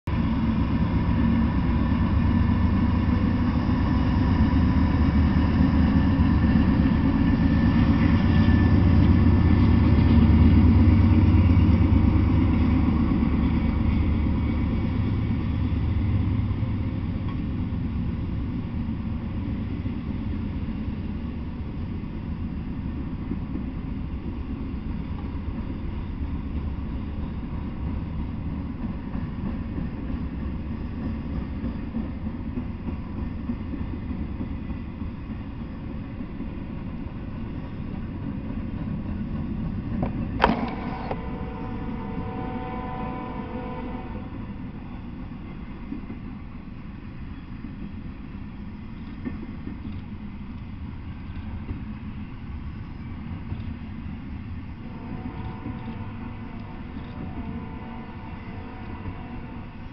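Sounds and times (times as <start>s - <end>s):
freight train passing: 0.0s - 59.9s.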